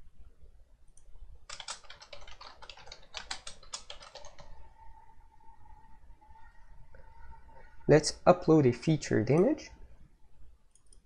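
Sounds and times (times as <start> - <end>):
typing on keyboard: 1.5 - 4.6.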